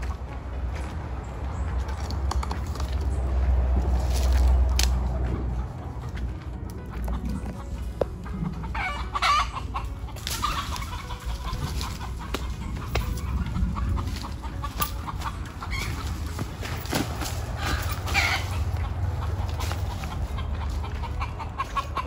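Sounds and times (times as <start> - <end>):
chicken clucking and squawking: 0.8 - 22.0
footsteps through dry leaves: 2.9 - 5.7, 8.7 - 22.0.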